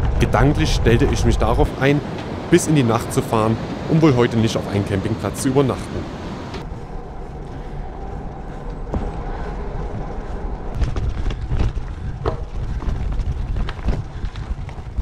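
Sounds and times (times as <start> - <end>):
wind on microphone: 0.0 - 15.0
bicycle tyres on gravel: 6.6 - 15.0.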